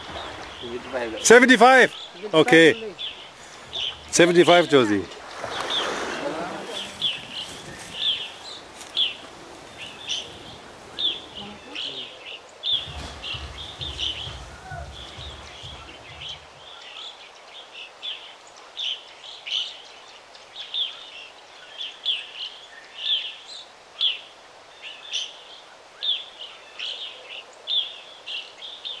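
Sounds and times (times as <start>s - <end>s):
bird chirping: 0.0s - 19.9s
faint background hiss: 0.0s - 29.0s.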